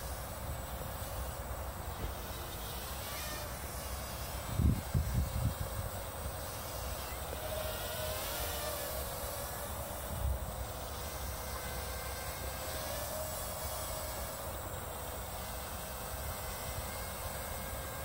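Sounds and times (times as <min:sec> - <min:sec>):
drone motors whining: 0:00.0 - 0:18.0
wind rumble on microphone: 0:04.5 - 0:05.9.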